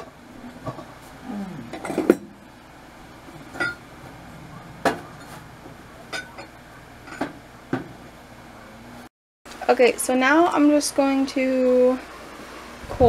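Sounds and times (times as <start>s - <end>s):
dishes and utensils clinking: 1.7s - 2.4s, 3.4s - 8.0s.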